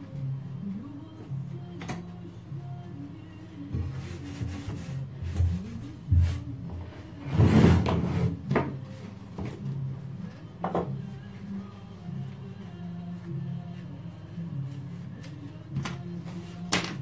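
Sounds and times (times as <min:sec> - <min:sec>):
cloth rubbing on metal: 0:03.8 - 0:06.5.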